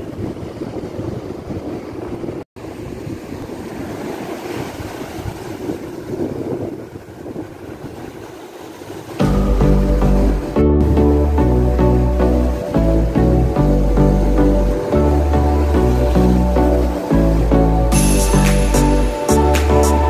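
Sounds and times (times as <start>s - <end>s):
wind buffeting microphone: 0.0s - 9.5s
ocean surf washing up: 0.0s - 20.0s.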